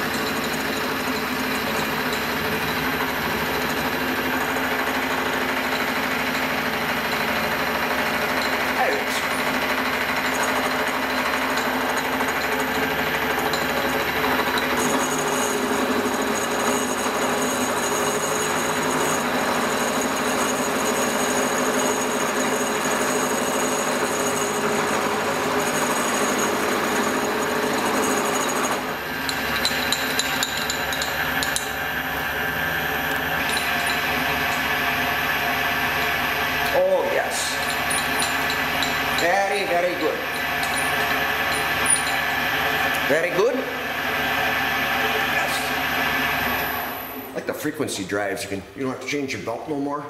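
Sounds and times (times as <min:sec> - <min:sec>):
milling machine cutting metal: 0:00.0 - 0:47.4.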